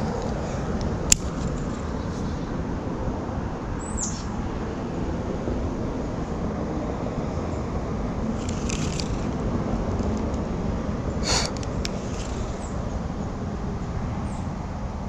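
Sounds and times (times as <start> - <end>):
low outdoor rumble: 0.0 - 15.0
bird chirp: 3.8 - 4.4.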